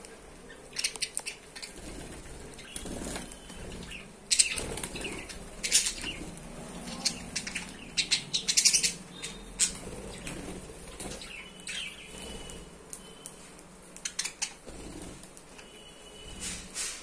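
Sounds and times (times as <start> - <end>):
budgerigars chirping: 0.5 - 12.6.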